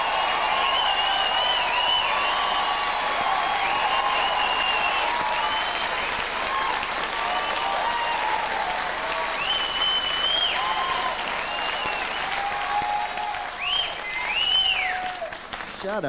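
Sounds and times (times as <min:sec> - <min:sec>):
audience applauding: 0:00.0 - 0:16.0
high whistles: 0:00.4 - 0:02.6, 0:03.6 - 0:06.1, 0:09.4 - 0:12.4, 0:13.6 - 0:15.1.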